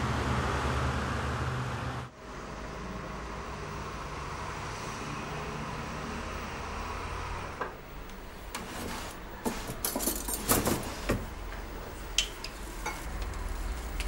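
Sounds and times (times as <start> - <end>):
street traffic hum: 0.0 - 14.0
crockery and cutlery clinking: 9.5 - 10.9.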